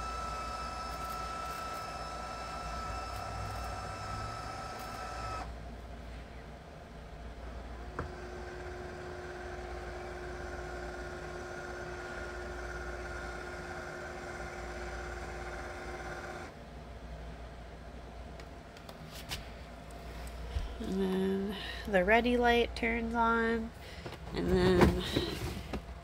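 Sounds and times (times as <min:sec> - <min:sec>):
motor whine: 0:00.0 - 0:05.6, 0:07.6 - 0:16.6
motor hum: 0:00.0 - 0:05.9, 0:07.0 - 0:16.6.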